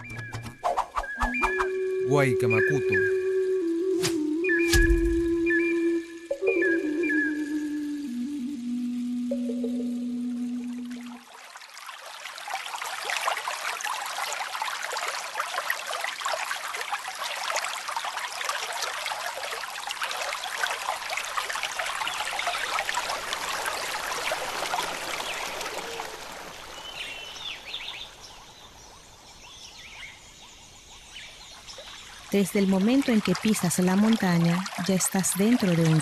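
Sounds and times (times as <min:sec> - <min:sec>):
river water babbling over stones: 0:11.2 - 0:29.4, 0:31.6 - 0:36.0.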